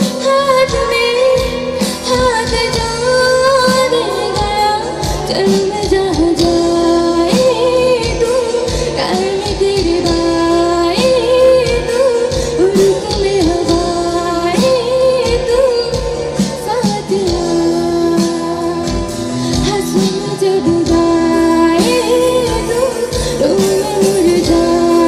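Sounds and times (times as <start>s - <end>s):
band with drums: 0.0s - 25.0s
woman singing into a microphone: 0.0s - 25.0s.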